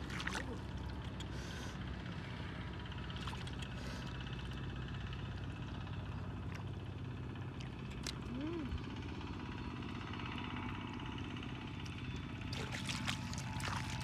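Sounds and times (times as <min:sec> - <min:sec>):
splashes in shallow water: 0:00.0 - 0:01.0, 0:12.5 - 0:14.0
low engine hum: 0:00.0 - 0:14.0.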